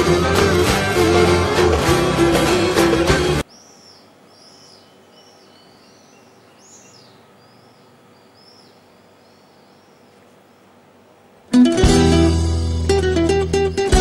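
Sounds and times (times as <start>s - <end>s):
small birds chirping: 3.4s - 11.0s, 13.1s - 14.0s
faint outdoor background noise: 3.4s - 14.0s.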